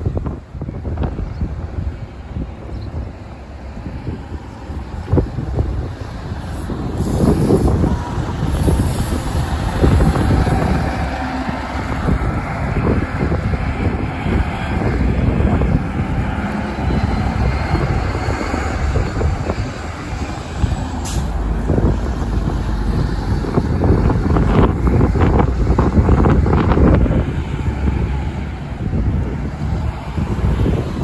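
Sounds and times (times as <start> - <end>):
bus engine low rumble: 0.0 - 31.0
sharp hiss: 6.0 - 10.6, 20.9 - 22.9.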